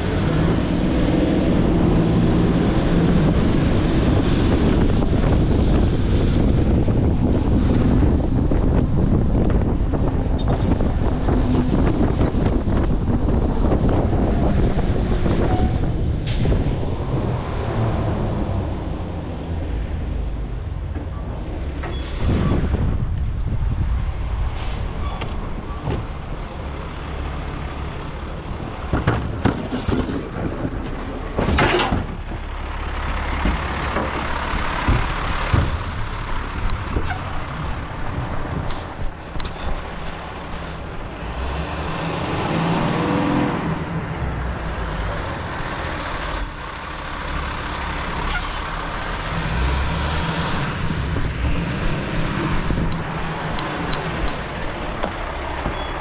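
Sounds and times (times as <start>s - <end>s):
garbage truck engine running: 25.4s - 41.2s
metal clanks and knocks: 28.8s - 32.5s.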